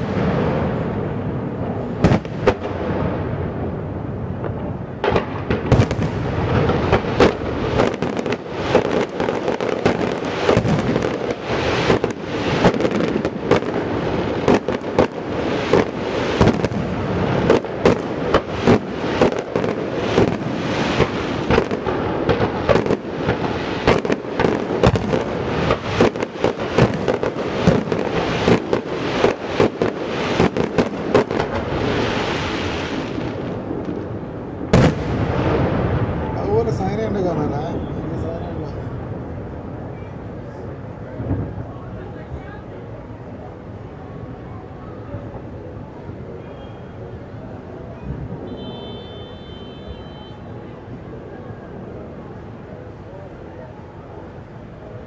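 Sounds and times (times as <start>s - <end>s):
crackling rumble: 0.0s - 37.8s
fireworks bangs: 0.0s - 42.7s, 45.3s - 53.2s.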